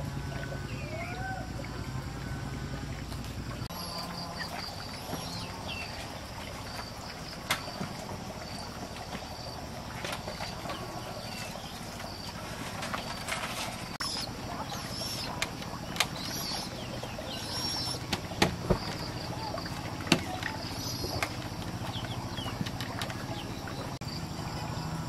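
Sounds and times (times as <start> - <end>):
birds chirping: 0.0 - 25.0
steady low hum: 0.0 - 25.0.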